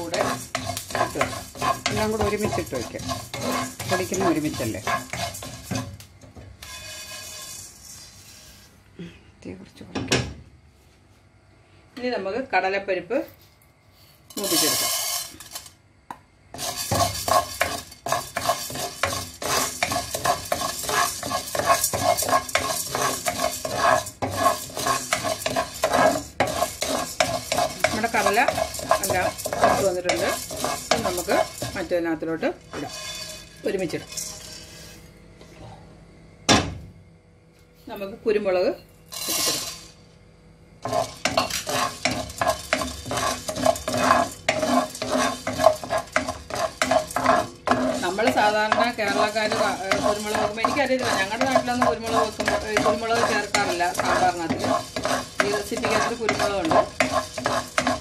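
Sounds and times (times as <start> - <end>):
spatula scraping frying pan: 0.0 - 6.0, 6.6 - 8.8, 14.3 - 15.8, 16.5 - 35.1, 39.1 - 40.0, 40.8 - 58.0
grains rattling in pan: 0.0 - 8.6, 14.3 - 15.8, 16.5 - 34.8, 39.1 - 40.0, 40.8 - 58.0
light sizzle: 0.0 - 9.2, 12.0 - 35.2, 37.9 - 58.0.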